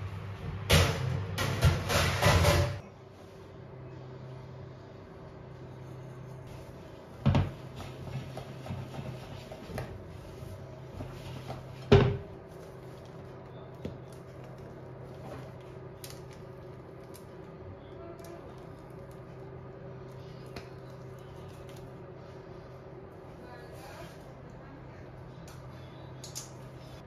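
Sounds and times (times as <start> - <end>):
steady low hum: 0.0 - 27.0
metal baking tray clanking: 0.7 - 2.8.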